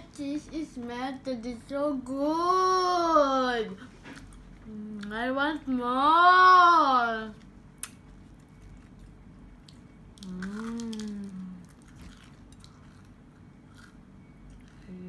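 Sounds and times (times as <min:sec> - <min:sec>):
girl humming mmm: 0:10.2 - 0:11.8.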